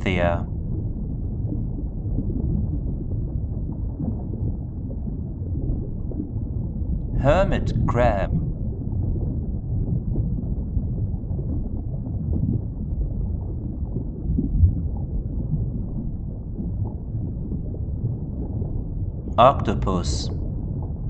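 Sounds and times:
low rumbling background noise: 0.0s - 21.0s.

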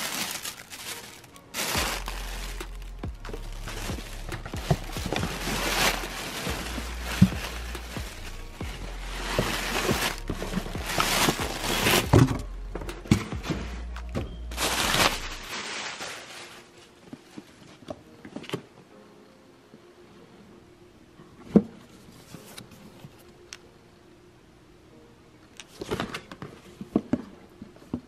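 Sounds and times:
plastic packing pillows crinkling: 0.0s - 12.5s, 13.1s - 17.8s.

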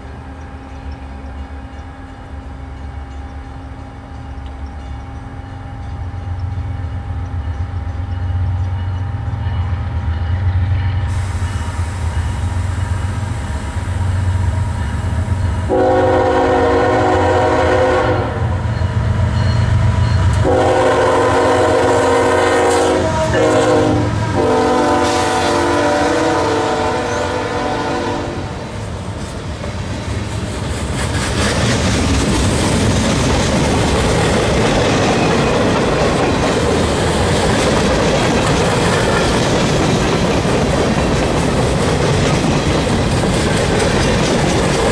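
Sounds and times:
diesel locomotive engines rumbling: 0.0s - 44.9s
locomotive horn blasts: 15.7s - 18.6s, 20.4s - 28.7s.

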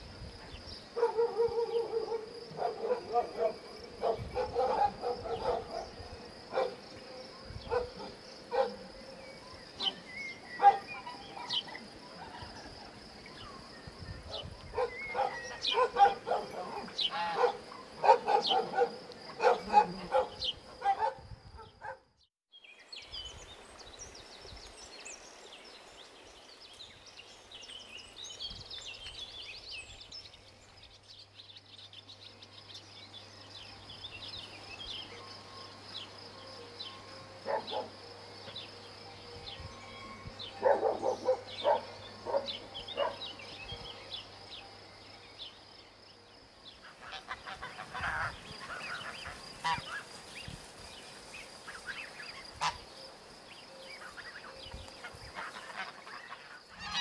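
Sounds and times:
birds chirping faintly: 0.0s - 57.0s
dogs barking: 1.0s - 6.8s, 7.7s - 8.9s, 10.6s - 11.7s, 14.3s - 22.0s, 37.4s - 37.9s, 40.6s - 43.3s.

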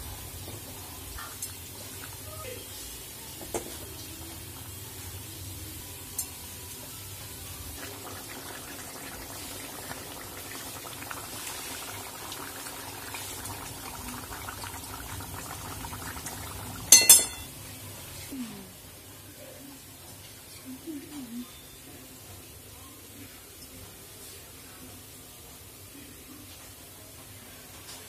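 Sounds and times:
curry bubbling in a pan: 7.8s - 17.0s.

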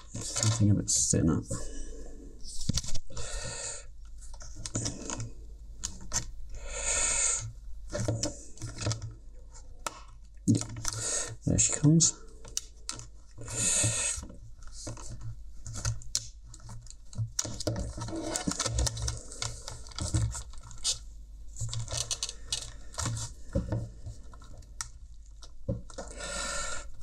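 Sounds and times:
plastic clicks and scratches: 4.0s - 6.3s, 7.9s - 11.0s, 12.4s - 13.5s, 14.2s - 26.2s.

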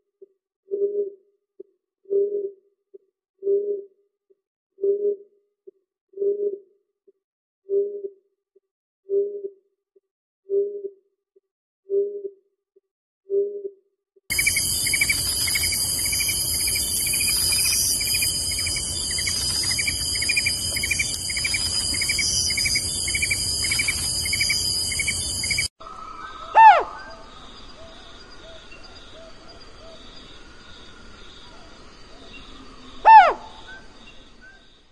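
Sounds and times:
insect chorus chirping: 14.3s - 25.7s
owl hooting: 14.3s - 25.7s, 26.4s - 27.2s, 33.0s - 33.8s.

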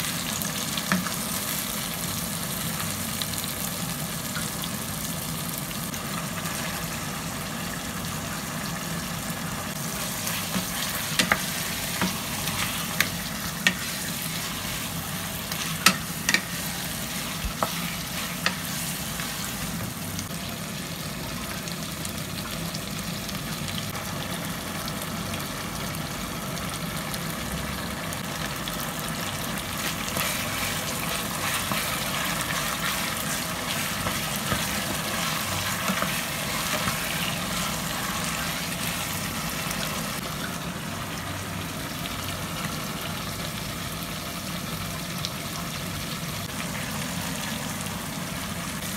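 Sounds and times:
chicken frying in oil: 0.0s - 48.9s
spatula stirring in pot: 9.8s - 20.0s, 29.8s - 39.1s
utensils tapping pot: 10.5s - 12.3s, 15.7s - 16.6s.

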